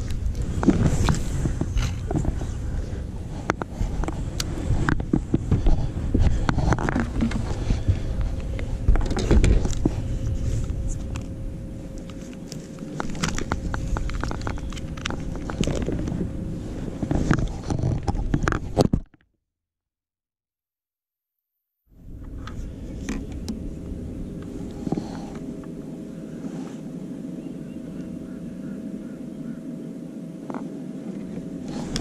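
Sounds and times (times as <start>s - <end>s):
low rumble: 0.0s - 18.8s, 21.9s - 32.0s
faint steady hum: 0.0s - 19.1s, 21.9s - 32.0s
gear knocking and rustling: 12.0s - 19.1s.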